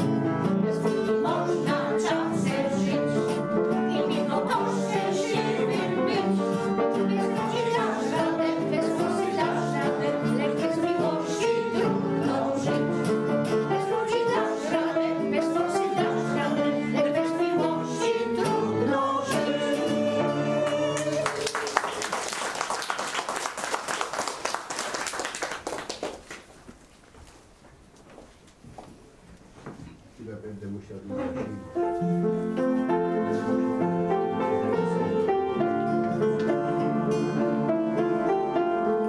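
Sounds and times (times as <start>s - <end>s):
vocal ensemble singing: 0.0s - 21.6s
audience applauding: 20.6s - 26.6s
instrumental accompaniment: 30.7s - 39.0s.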